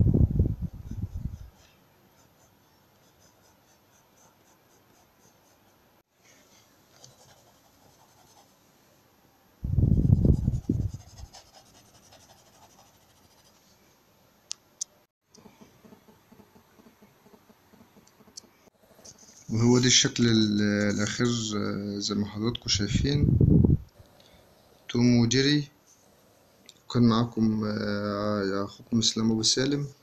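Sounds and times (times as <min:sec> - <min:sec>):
pencil strokes on paper: 0:00.7 - 0:08.6, 0:10.0 - 0:13.7, 0:19.0 - 0:21.4.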